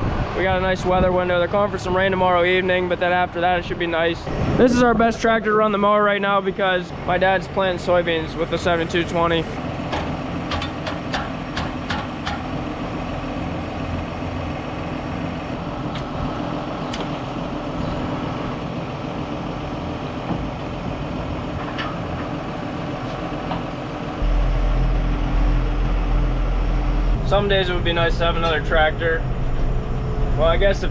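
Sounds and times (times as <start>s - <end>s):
tractor diesel engine idling: 5.0s - 30.9s.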